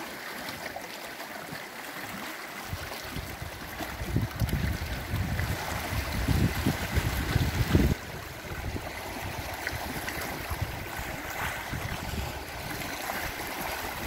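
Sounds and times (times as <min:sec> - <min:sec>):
waves lapping over rocks: 0:00.0 - 0:14.0
wind buffeting microphone: 0:02.7 - 0:14.0.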